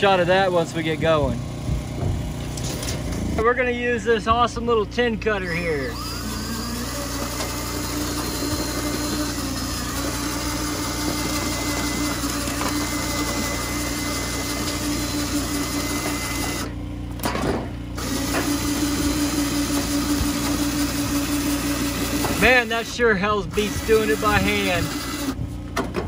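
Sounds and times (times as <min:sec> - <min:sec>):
drill cutting metal sheet: 0:05.4 - 0:16.8, 0:18.0 - 0:25.4.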